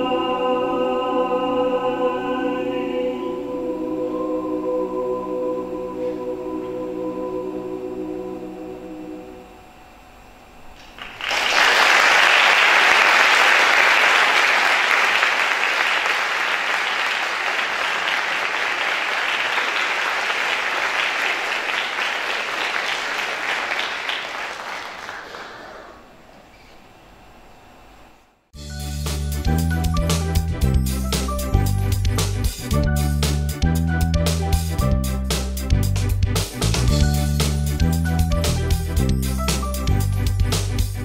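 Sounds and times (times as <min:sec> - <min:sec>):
choir singing held chord: 0:00.0 - 0:10.2
audience applause: 0:10.8 - 0:26.2.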